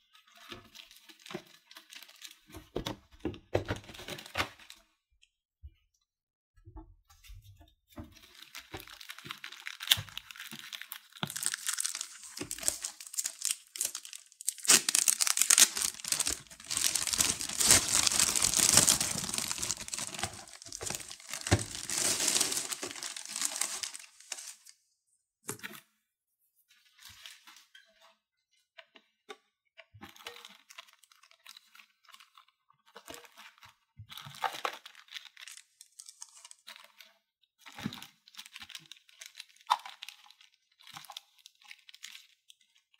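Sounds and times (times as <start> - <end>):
packaging crinkling and tearing: 8.2 - 24.7, 34.3 - 37.0, 38.3 - 42.4.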